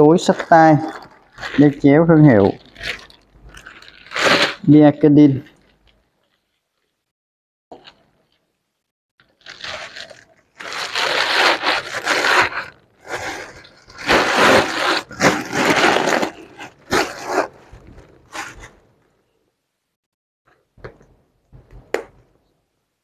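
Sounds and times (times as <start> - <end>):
plastic wrapping crinkling: 0.0 - 4.8, 5.4 - 7.0, 9.2 - 18.7.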